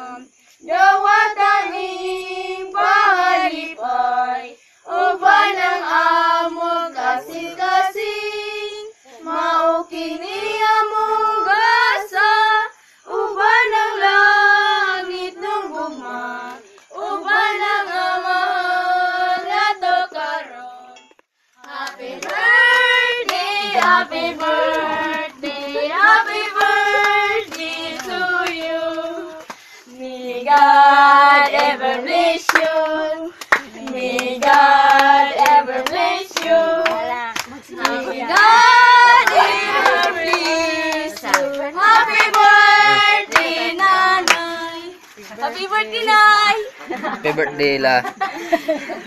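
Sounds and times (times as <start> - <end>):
people singing birthday song: 0.0 - 49.0
hands clapping: 21.6 - 29.7, 31.4 - 31.8, 32.5 - 44.5.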